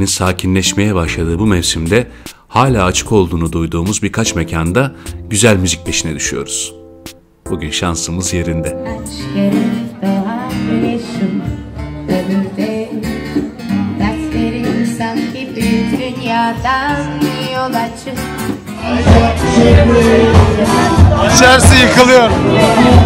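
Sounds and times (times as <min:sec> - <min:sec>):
acoustic guitar strumming: 0:01.9 - 0:23.0
person singing: 0:08.4 - 0:23.0.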